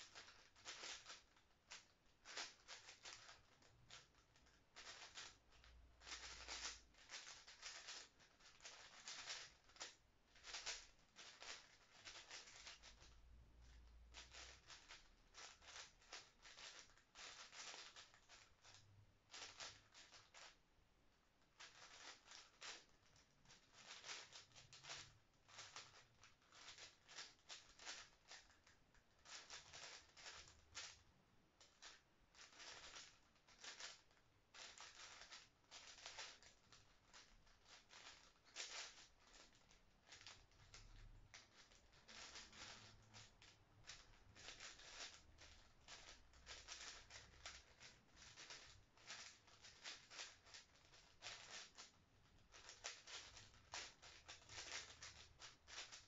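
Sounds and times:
puzzle cube clicking: 0.0 - 13.2, 14.1 - 20.5, 23.7 - 28.4, 29.2 - 31.0, 32.4 - 34.0, 37.1 - 40.8, 43.9 - 51.9, 52.5 - 56.0.

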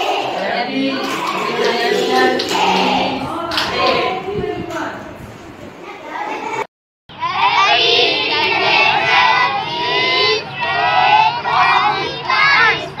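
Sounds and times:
children singing in unison: 0.0 - 4.3, 7.1 - 13.0.

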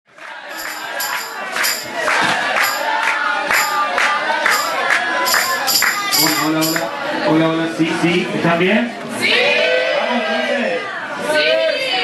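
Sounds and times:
crowd shouting and cheering: 0.3 - 7.8, 9.0 - 12.0
tambourine jingling: 0.5 - 7.0.

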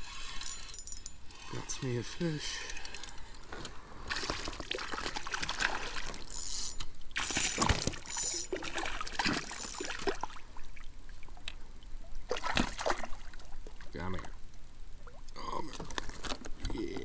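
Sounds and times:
fish splashing in water: 4.1 - 6.2, 7.2 - 10.4, 12.3 - 13.8.

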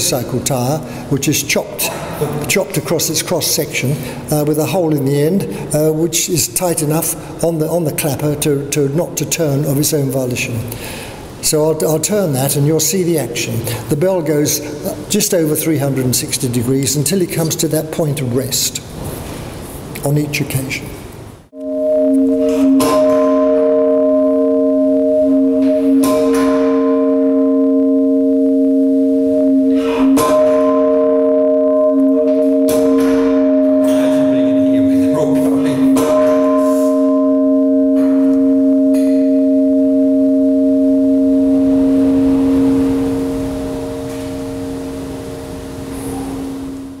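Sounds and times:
sharp bell clank: 21.6 - 28.1, 29.6 - 45.0
church bells ringing: 21.6 - 47.0.

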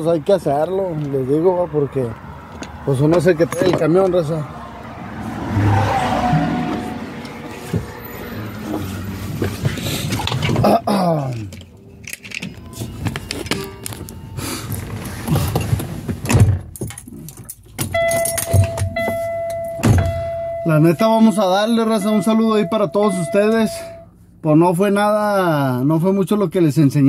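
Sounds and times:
steady high tone: 4.8 - 8.1, 18.0 - 24.1
knocks and rattles in truck cab: 15.3 - 17.1, 17.7 - 20.6.

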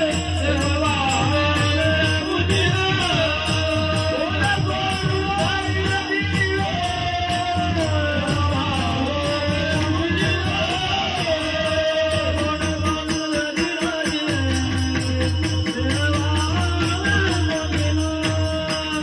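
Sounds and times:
hand drums: 0.0 - 19.0.

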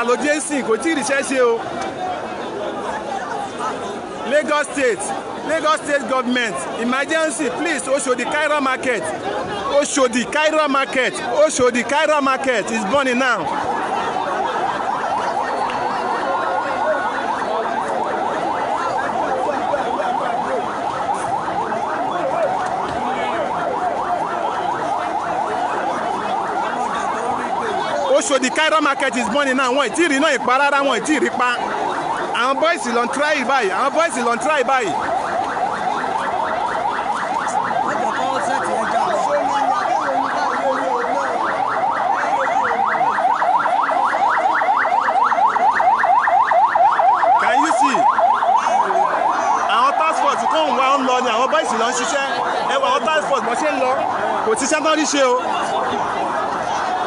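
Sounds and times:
large crowd noise: 0.0 - 57.0
siren yelping: 0.0 - 57.0.

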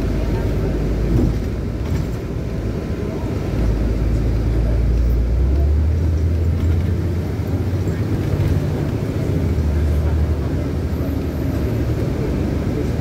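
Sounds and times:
bus engine drone: 0.0 - 13.0
road noise: 0.0 - 13.0.

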